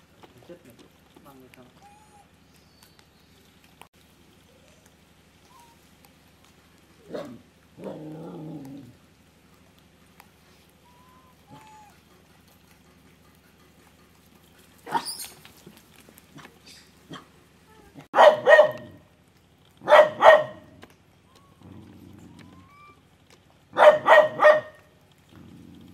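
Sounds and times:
animal calls: 1.7s - 3.5s, 10.6s - 15.6s, 19.8s - 23.2s.

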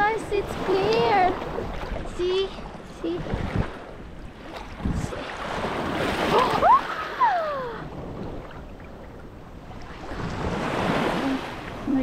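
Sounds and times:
waves washing up sand: 0.0s - 12.0s
wind on microphone: 0.0s - 12.0s.

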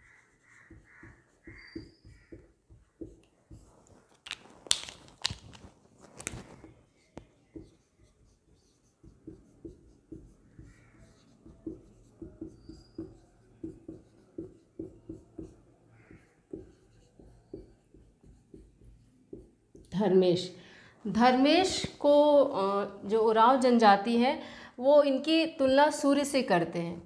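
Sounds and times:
marker writing on whiteboard: 0.0s - 5.4s, 6.2s - 20.1s.

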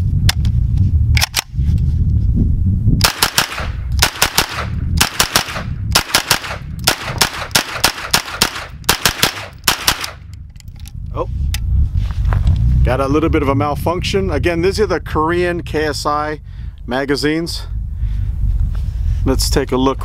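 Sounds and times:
gun clicks: 1.2s - 1.5s, 3.0s - 11.0s
pistol firing rapid shots: 3.0s - 10.2s.

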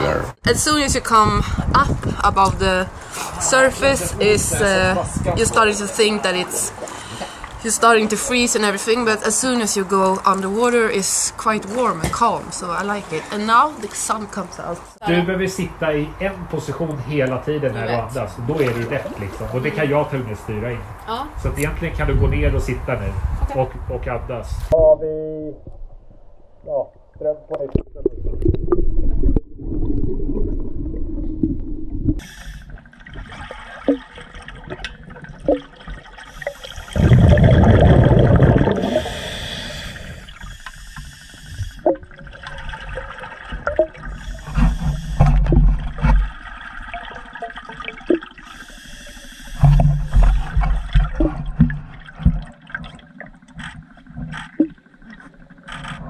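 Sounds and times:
exhaled bubbles rushing: 26.9s - 40.6s, 41.8s - 48.5s
regulator hissing on inhale: 32.2s - 32.8s, 36.3s - 37.0s, 38.8s - 41.8s, 44.1s - 45.4s, 48.4s - 51.0s.

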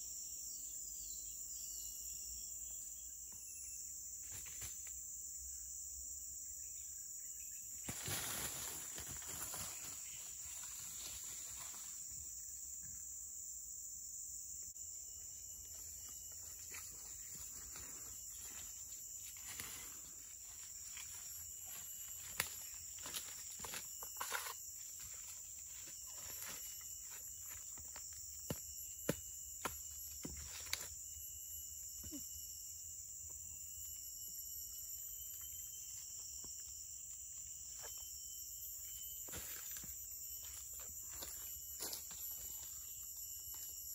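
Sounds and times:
insects droning: 0.0s - 43.9s
footsteps rustling through leaves: 7.9s - 11.9s.

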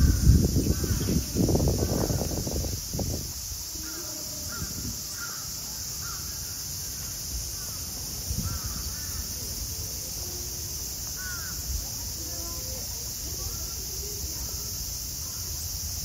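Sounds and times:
birds calling: 0.0s - 2.2s
steady high hiss: 0.0s - 16.0s.

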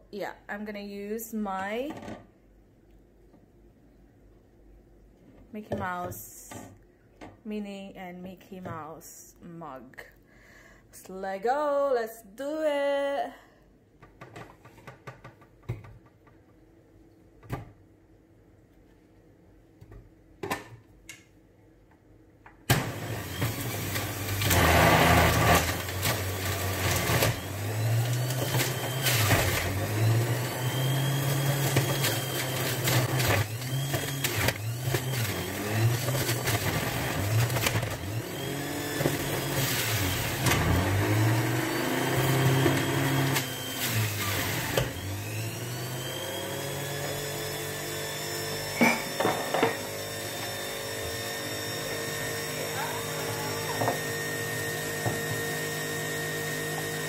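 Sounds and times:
electric juicer grinding: 22.7s - 57.0s.

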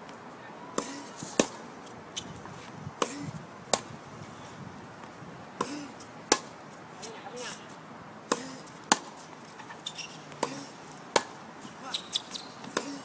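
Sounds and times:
tennis ball bouncing on court: 0.8s - 1.6s, 6.3s - 6.5s, 8.3s - 13.0s
tennis ball hit by racket: 0.8s - 1.6s, 5.6s - 6.5s, 8.2s - 11.4s.

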